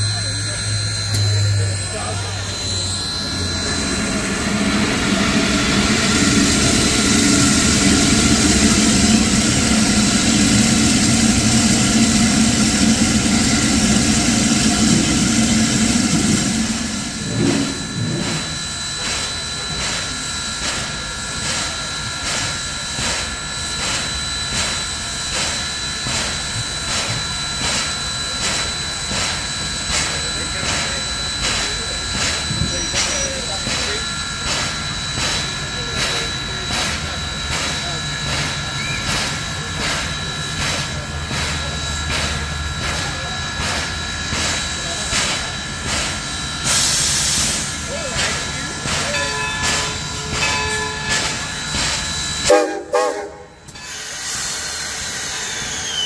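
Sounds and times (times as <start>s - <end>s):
steam hissing: 0.0s - 56.0s
crossing bell ringing: 48.0s - 54.2s.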